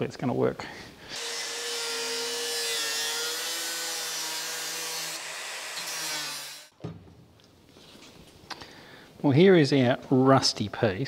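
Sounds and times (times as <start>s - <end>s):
angle grinder grinding metal: 1.1s - 6.7s.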